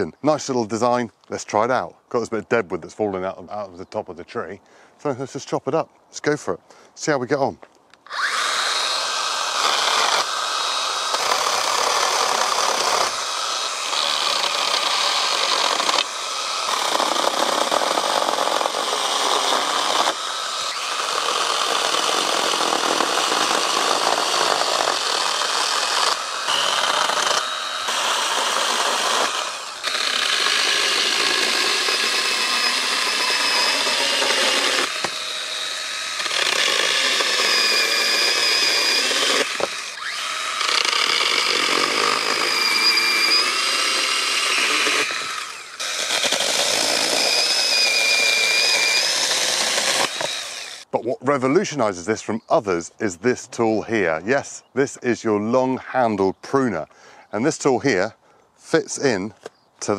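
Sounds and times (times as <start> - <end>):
mini chainsaw cutting wood: 8.0 - 50.9.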